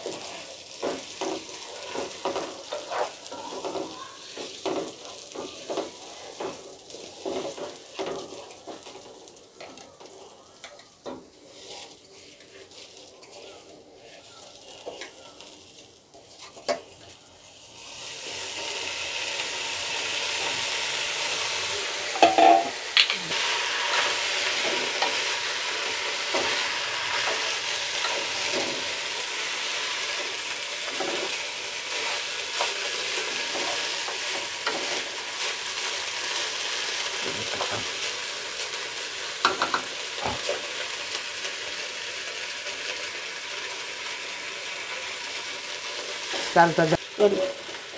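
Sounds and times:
rice sizzling in hot oil: 0.0s - 47.9s
spatula scraping a pot: 1.2s - 3.9s.

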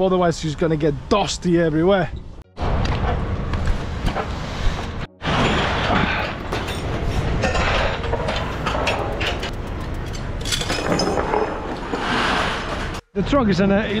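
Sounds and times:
metal buckles clinking: 6.6s - 11.6s.

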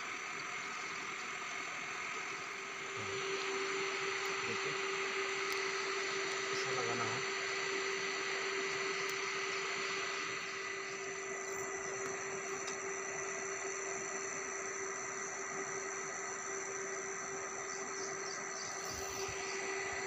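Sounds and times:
steady hiss: 0.0s - 7.3s, 7.9s - 20.0s
constant hum: 0.0s - 20.0s.

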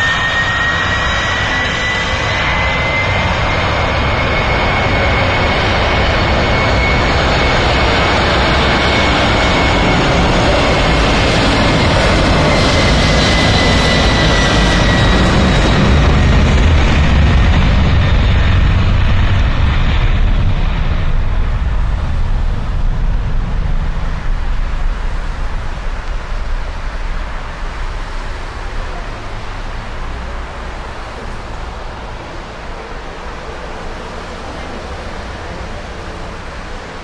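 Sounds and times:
jet engines rumbling and whining: 0.0s - 37.0s.

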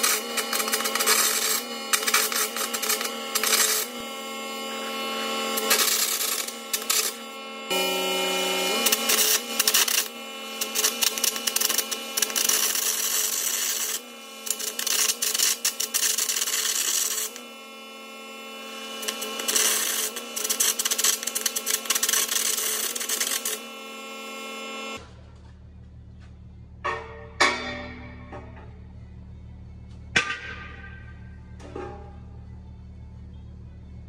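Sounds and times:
arc crackling and popping: 0.0s - 25.0s
steady hum: 0.0s - 34.0s.

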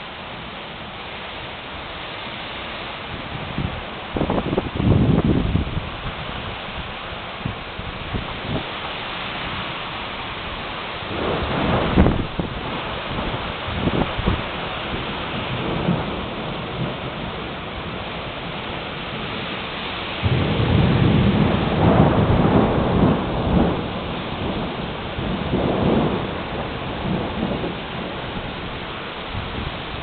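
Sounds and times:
rain falling steadily: 0.0s - 30.0s
thunder rumbling: 3.1s - 6.6s, 10.4s - 19.5s, 20.1s - 30.0s.

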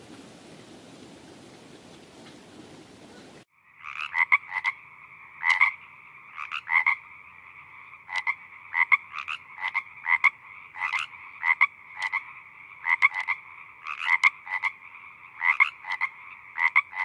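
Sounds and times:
chorus of frogs: 2.8s - 17.0s
frog croaking: 3.5s - 17.0s.

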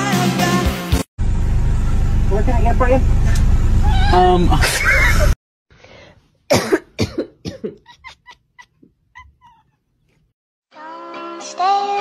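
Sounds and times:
cat vocalizing: 8.5s - 9.8s.

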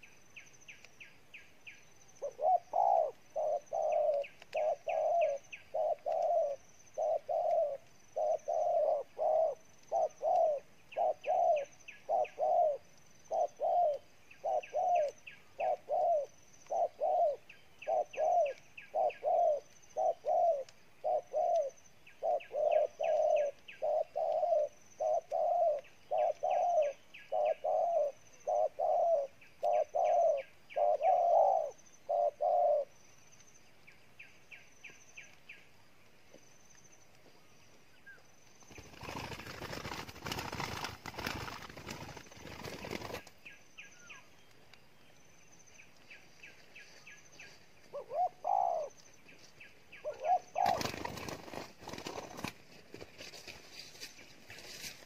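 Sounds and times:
doves cooing: 2.2s - 33.0s, 38.7s - 43.4s, 46.8s - 52.6s.

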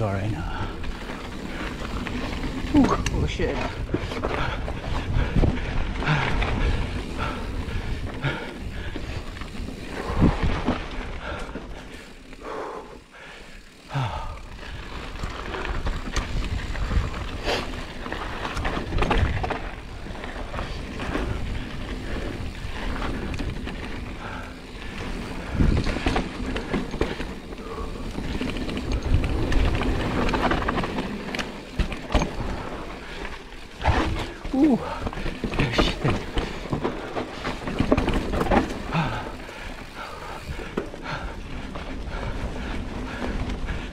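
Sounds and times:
bike tyres rolling over dirt: 0.0s - 43.9s
wind buffeting microphone: 3.0s - 11.4s, 14.5s - 30.8s
bike clattering over bumps: 13.2s - 43.9s.

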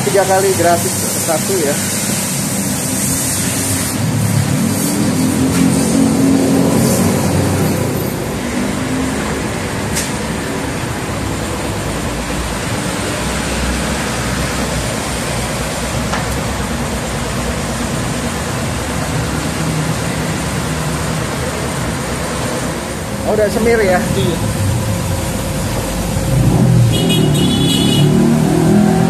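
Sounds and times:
car wash equipment hiss and rumble: 0.0s - 29.0s
passing traffic: 0.0s - 29.0s.

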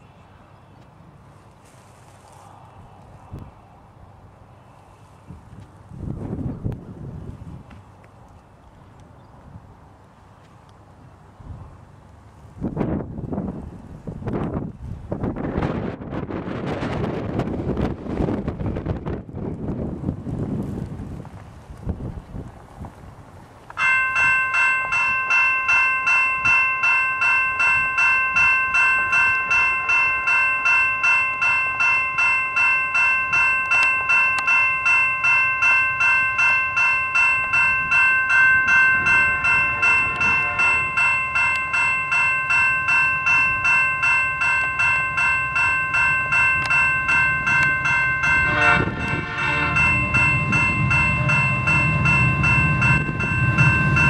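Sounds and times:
diesel locomotives rumbling: 0.0s - 54.0s
railway crossing bell ringing: 23.8s - 54.0s.

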